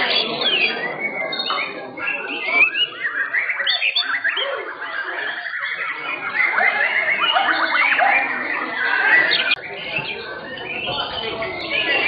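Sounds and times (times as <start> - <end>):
songbirds singing: 0.0 - 12.0.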